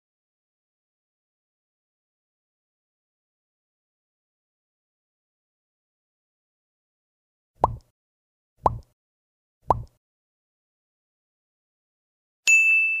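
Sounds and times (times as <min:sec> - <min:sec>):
thumps with click and tone: 0:07.6 - 0:07.9, 0:08.6 - 0:08.9, 0:09.7 - 0:10.0.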